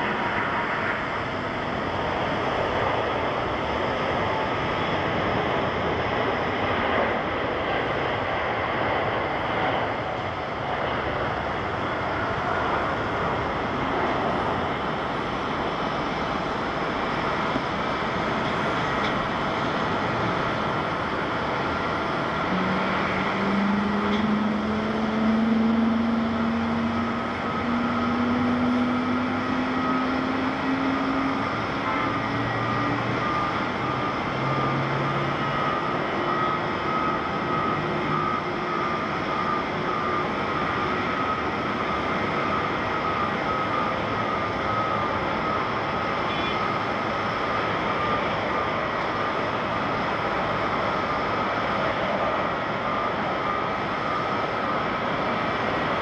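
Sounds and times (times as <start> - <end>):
distant jet rumble with hiss: 0.0 - 56.0
thin steady whine: 0.0 - 56.0
low hum rising in pitch: 22.4 - 35.4.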